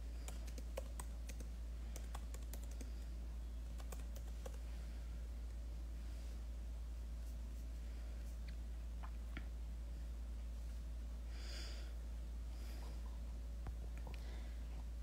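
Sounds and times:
steady low hum: 0.0s - 15.0s
typing clicks: 0.2s - 3.0s, 3.7s - 4.6s.

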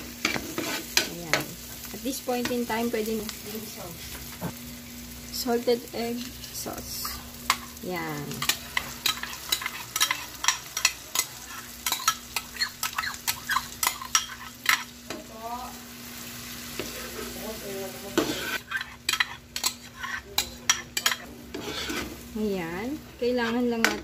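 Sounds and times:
sizzling: 0.0s - 24.0s
metal spoon scraping wok: 0.2s - 1.1s, 8.3s - 14.9s, 18.1s - 22.2s, 23.3s - 24.0s.

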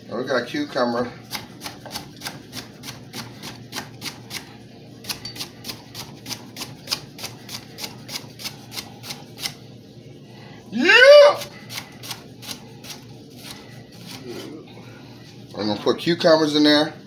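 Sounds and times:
knife chopping on wooden board: 1.3s - 4.5s.

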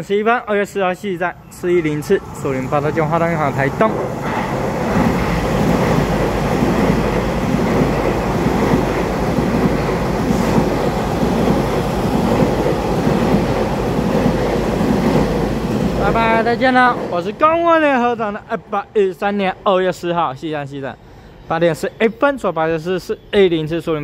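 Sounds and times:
train wheels on rails: 1.2s - 17.8s.

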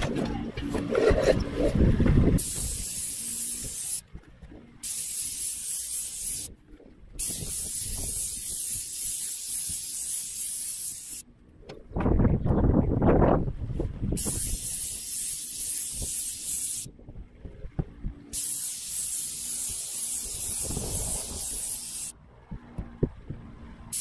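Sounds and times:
low rumbling noise: 0.0s - 2.8s
paint sprayer hissing: 2.4s - 4.0s, 4.8s - 6.5s, 7.2s - 11.2s, 14.2s - 16.9s, 18.3s - 22.2s.

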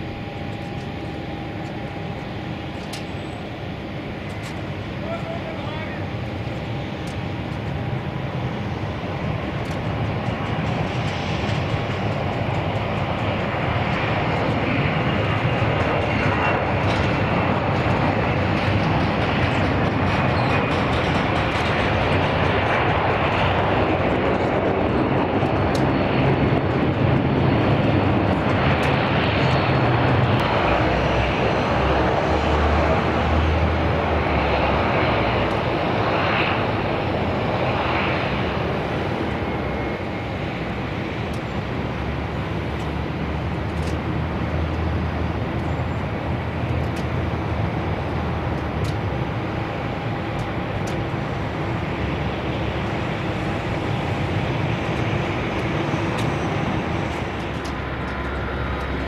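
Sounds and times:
jet engines roaring: 0.0s - 59.0s.

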